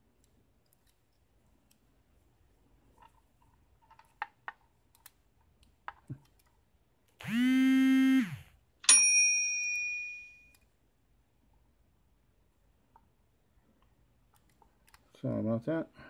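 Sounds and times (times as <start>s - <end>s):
bell-like ding: 8.9s - 10.5s.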